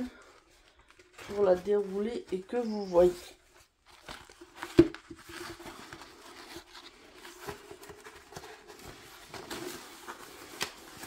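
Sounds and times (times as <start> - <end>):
canvas and paper crackling: 0.0 - 11.0.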